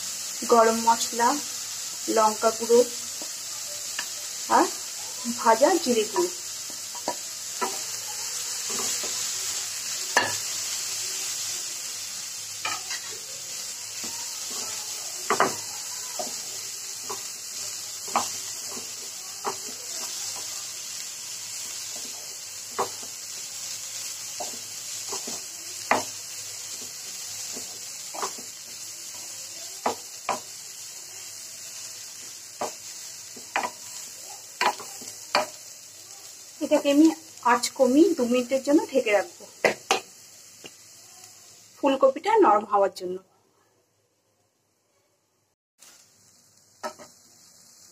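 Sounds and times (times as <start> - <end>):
food sizzling in oil: 0.0 - 43.2, 45.8 - 47.9
spatula scraping pan: 6.1 - 10.8, 12.6 - 13.3.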